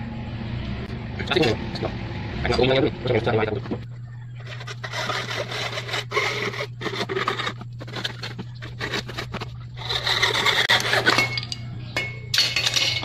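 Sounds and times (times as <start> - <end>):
hacksaw cutting plastic: 4.4 - 11.4.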